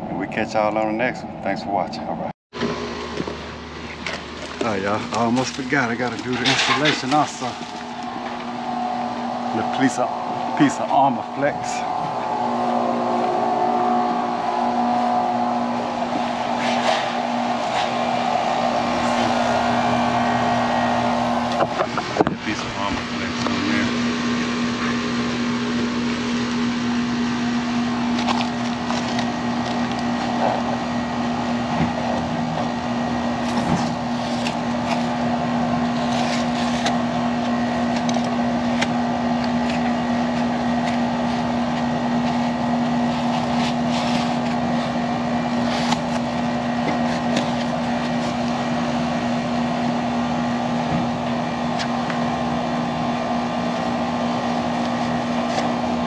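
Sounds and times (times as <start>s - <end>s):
air conditioner humming: 0.0s - 56.0s
foam insulation rustling: 3.9s - 11.8s.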